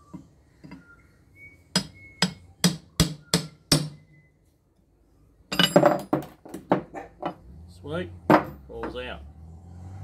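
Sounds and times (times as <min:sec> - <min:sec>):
hammer striking metal punch: 0:01.7 - 0:04.1.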